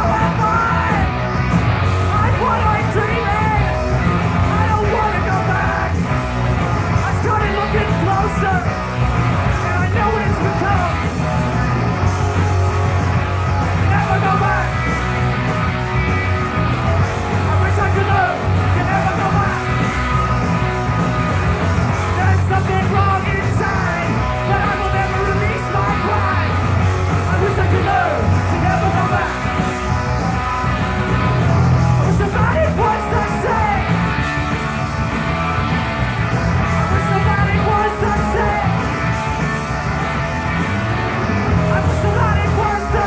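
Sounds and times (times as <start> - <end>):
person shouting and singing: 0.0 - 1.3, 2.0 - 6.2, 6.8 - 11.3, 13.7 - 15.0, 17.0 - 34.2, 36.6 - 39.2, 41.5 - 43.0
punk band playing live: 0.0 - 43.0.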